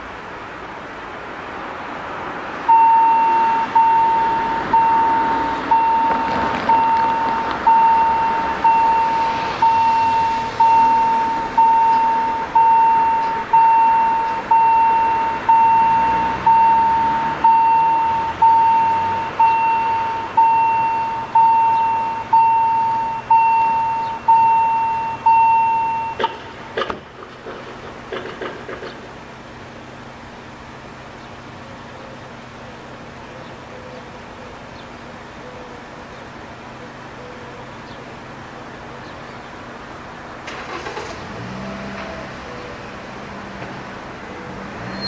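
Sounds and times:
level crossing bell ringing: 2.7 - 26.2.

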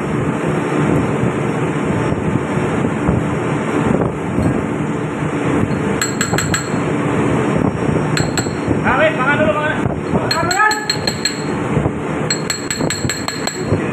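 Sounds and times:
light metal clinks: 5.7 - 6.9, 8.2 - 8.8, 10.1 - 11.6.

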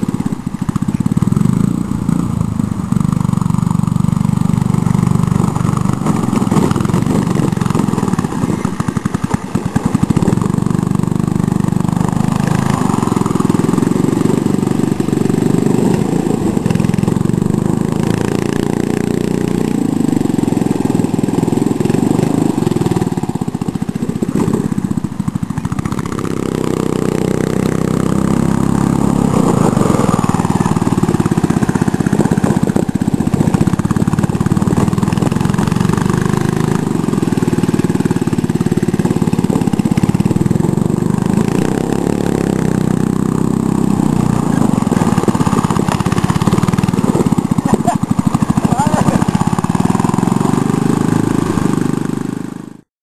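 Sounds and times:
small gas engine revving: 0.0 - 52.9.

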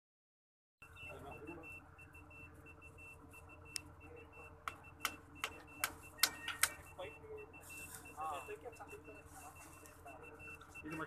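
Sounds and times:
high beeps: 0.8 - 11.0
sharp clicks: 4.6 - 6.8.

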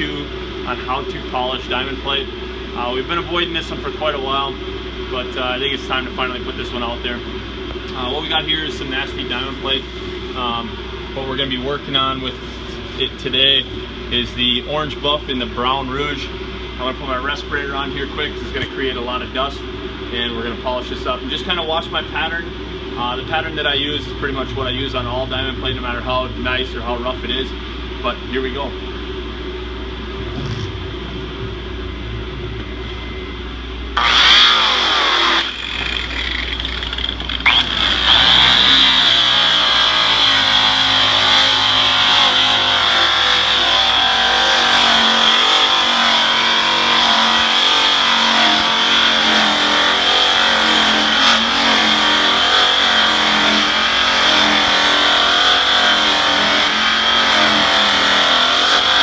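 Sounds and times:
polisher motor whine: 30.1 - 59.0.

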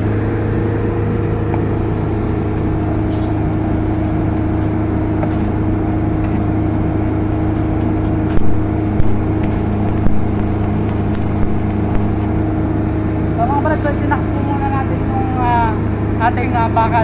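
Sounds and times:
sharp crack: 8.3 - 12.3
welding machine humming: 8.3 - 12.4.

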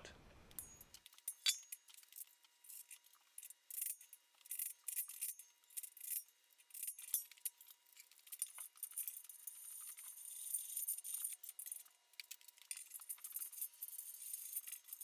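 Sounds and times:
metal bolts clinking and rattling: 0.5 - 2.1.

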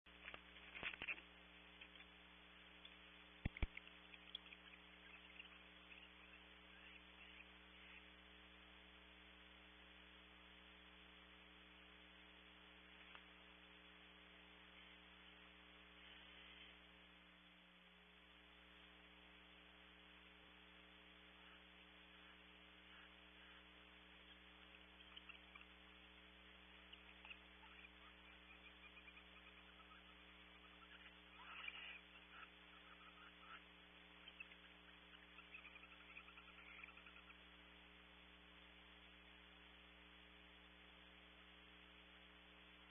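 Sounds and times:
electrical mains hum: 0.1 - 42.9
owls scratching: 0.2 - 2.1, 2.8 - 7.5, 26.9 - 33.6, 34.2 - 37.4
sharp click: 3.4 - 4.4.

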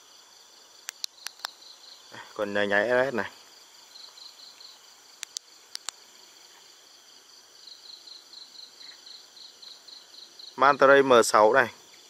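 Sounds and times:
night insects chirping: 0.0 - 12.0
flashlight switch clicks: 0.8 - 1.6, 5.2 - 6.0.

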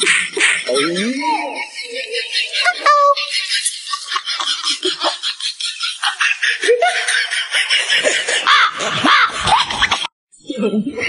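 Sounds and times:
person giggling: 0.0 - 5.4.

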